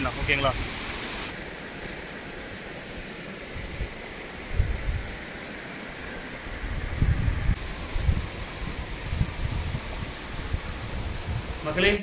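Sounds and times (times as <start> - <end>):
waterfall rushing: 0.0 - 12.0
wind buffeting microphone: 3.4 - 5.3, 6.4 - 12.0.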